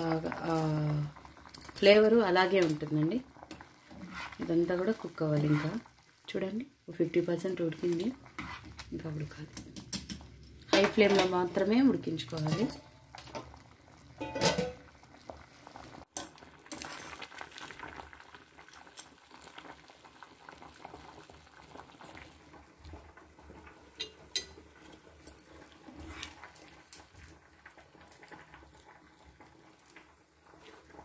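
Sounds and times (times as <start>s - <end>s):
water boiling and bubbling: 0.0s - 31.0s
metal spoon clinking on pot: 12.4s - 12.9s, 24.0s - 24.6s.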